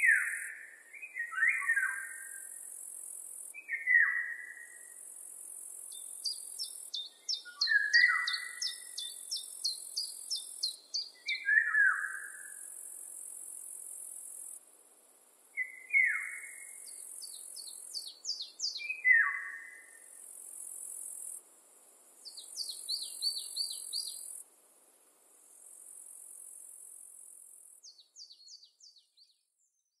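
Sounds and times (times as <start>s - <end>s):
songbirds singing: 0.0s - 2.7s, 3.6s - 5.0s, 5.7s - 12.9s, 15.6s - 20.2s, 22.2s - 24.4s, 27.8s - 30.0s
high insect buzz: 4.8s - 11.1s, 16.2s - 24.5s.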